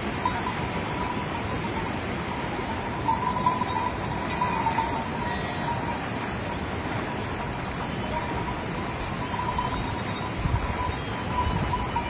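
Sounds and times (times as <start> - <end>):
shallow river rushing: 0.0 - 12.0
sheep splashing through water: 0.0 - 12.0
thin ringing tone: 0.0 - 12.0.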